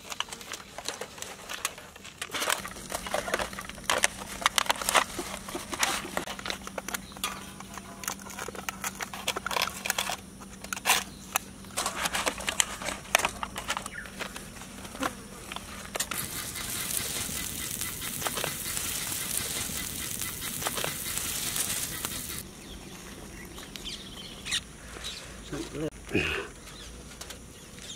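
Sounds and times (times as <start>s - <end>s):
aluminium foil crinkling: 0.0s - 11.1s, 11.7s - 22.4s
butter sizzling on griddle: 16.0s - 22.4s.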